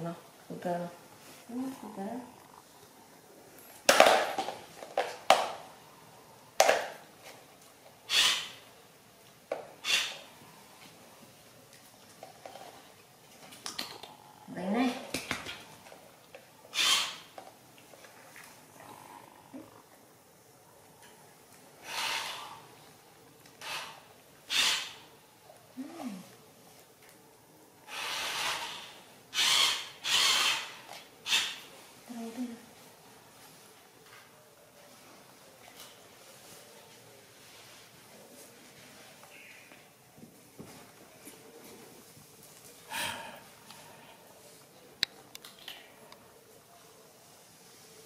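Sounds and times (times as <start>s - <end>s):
breathy huffs of air: 42.9s - 44.2s.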